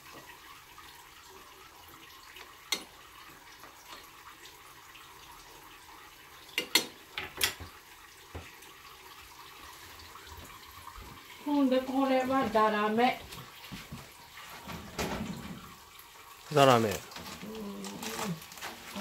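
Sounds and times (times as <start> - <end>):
faint steady hiss: 0.0 - 19.0
kitchen utensils clinking: 6.6 - 7.6.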